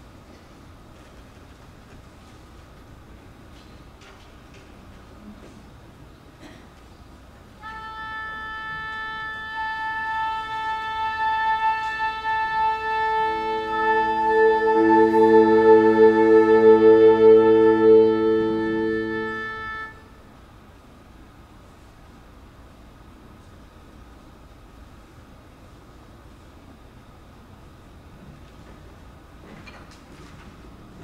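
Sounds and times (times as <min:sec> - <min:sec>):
wind instrument holding a note: 0:07.6 - 0:20.2
band playing a tuning note: 0:07.7 - 0:20.1.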